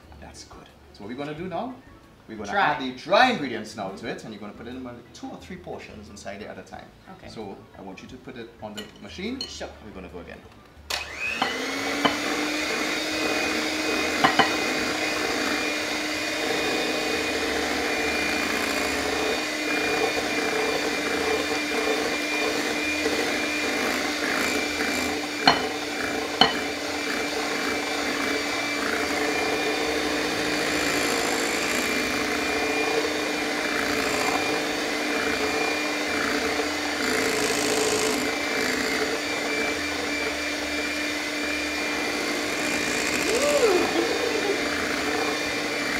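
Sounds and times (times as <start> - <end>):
electric hand mixer whining: 10.9 - 45.9.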